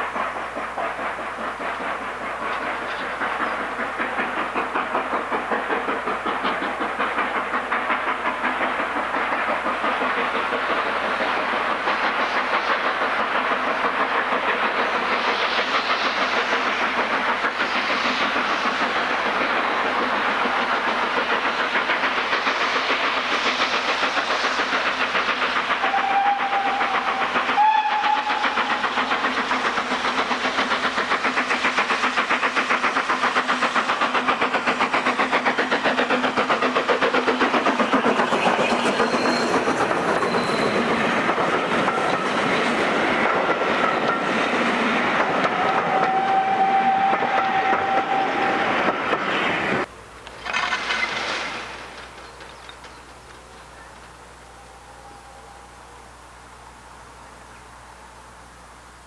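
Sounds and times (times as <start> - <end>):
train wheels clattering on rails: 0.0 - 54.7
steam locomotive exhaust beating: 0.0 - 59.0
steam whistle: 25.8 - 28.8, 45.4 - 48.7.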